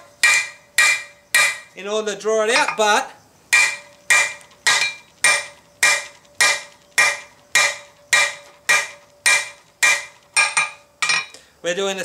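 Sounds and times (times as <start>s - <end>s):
hammer striking hot metal on anvil: 0.2s - 1.8s, 3.5s - 11.3s.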